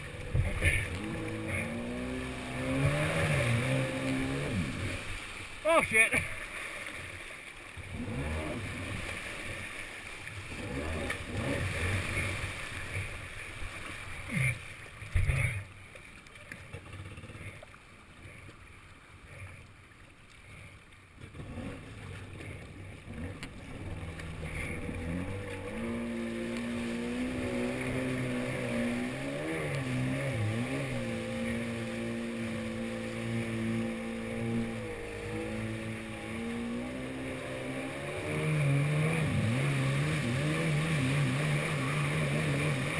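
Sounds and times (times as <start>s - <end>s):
water splashing against hull: 0.0s - 42.9s
two-stroke engine running: 23.1s - 42.9s.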